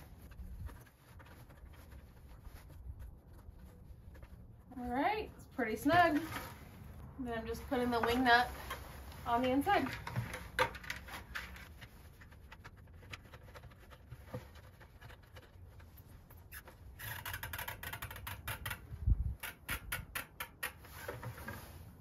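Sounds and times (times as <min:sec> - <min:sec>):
plastic clicks and rubbing: 0:09.8 - 0:21.6.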